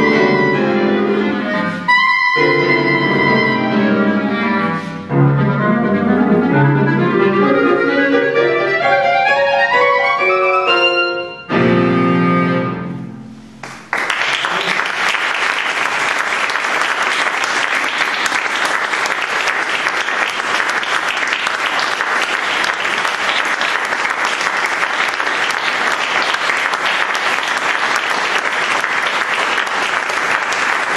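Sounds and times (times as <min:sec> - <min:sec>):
clarinet: 0:00.0 - 0:13.4
piano: 0:00.0 - 0:30.9
audience applause: 0:13.6 - 0:30.9.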